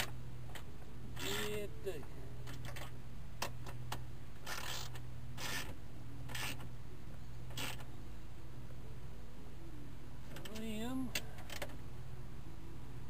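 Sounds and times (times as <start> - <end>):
ratchet wrench ratcheting rasps: 1.2 - 1.6, 4.4 - 6.7, 7.5 - 7.8.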